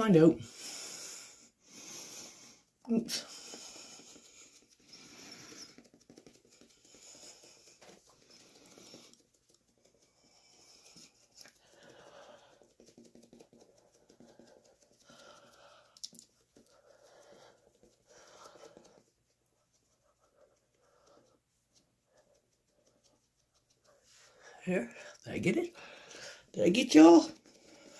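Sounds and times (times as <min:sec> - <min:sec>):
soft pattering and rustling: 0:05.5 - 0:24.6.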